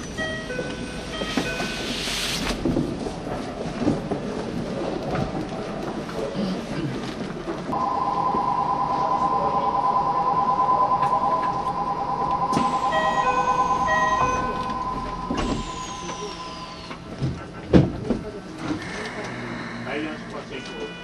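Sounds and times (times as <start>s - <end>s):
electronic two-tone trilling bell: 7.8s - 17.0s
short high chime notes: 7.8s - 17.0s.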